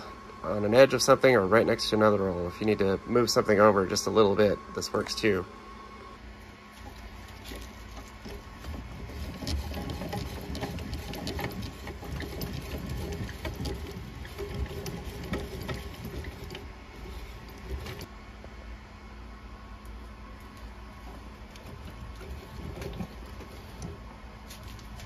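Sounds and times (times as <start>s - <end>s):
cutting ticks and rattles: 6.8s - 18.1s.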